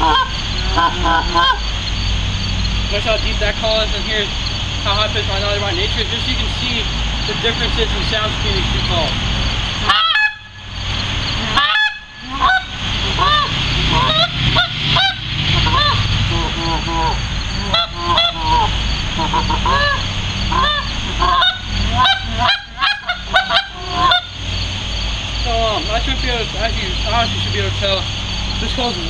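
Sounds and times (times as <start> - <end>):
goose call clucks and honks: 0.0 - 2.0, 9.7 - 24.6.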